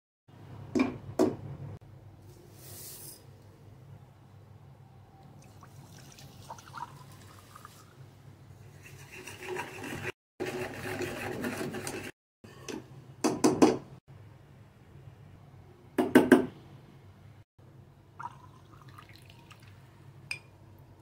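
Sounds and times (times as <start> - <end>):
whisk scraping a pan: 8.6 - 12.2.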